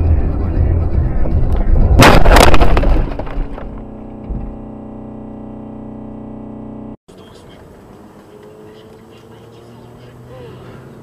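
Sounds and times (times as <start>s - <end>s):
road rumble: 0.0s - 11.0s
vehicle crash with crunching: 1.4s - 4.5s.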